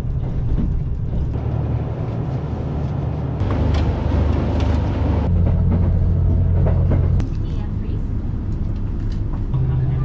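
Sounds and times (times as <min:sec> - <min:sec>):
diesel train rumble inside carriage: 0:00.0 - 0:10.0.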